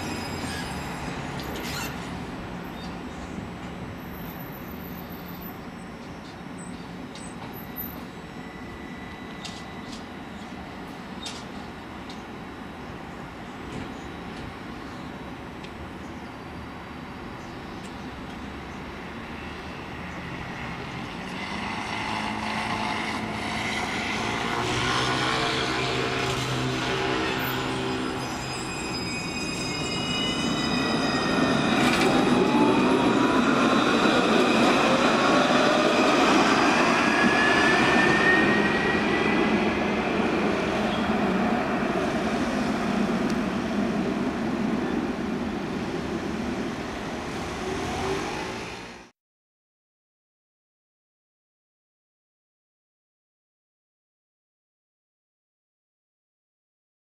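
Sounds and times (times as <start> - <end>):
street traffic noise: 0.0 - 49.1
tram electric drive whine: 0.0 - 49.1.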